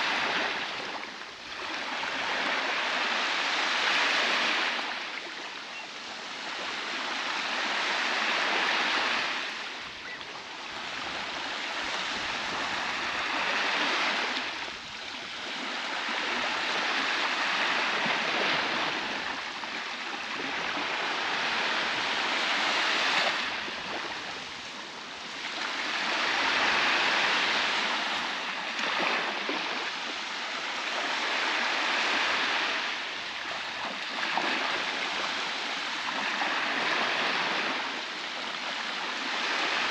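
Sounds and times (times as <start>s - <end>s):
waves breaking on beach: 0.0s - 39.9s.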